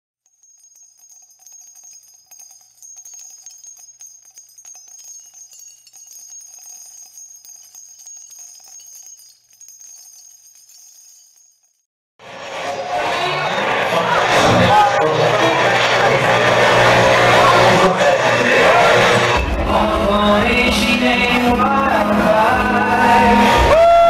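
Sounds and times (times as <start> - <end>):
small bells jingling: 0.2 - 11.9.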